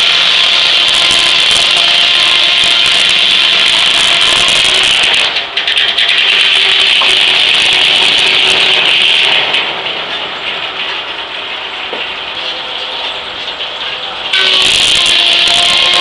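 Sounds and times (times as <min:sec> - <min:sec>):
circular saw cutting log: 0:00.0 - 0:09.3, 0:14.3 - 0:16.0
mechanical clatter of carriage: 0:04.8 - 0:14.6.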